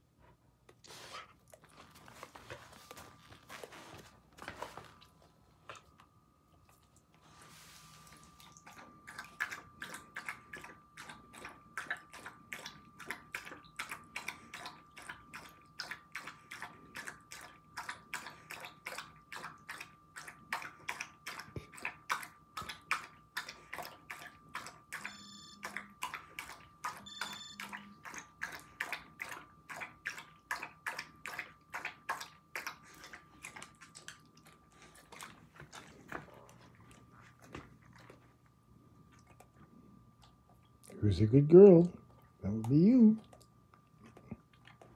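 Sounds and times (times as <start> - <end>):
dog lapping water from bowl: 6.7 - 37.8.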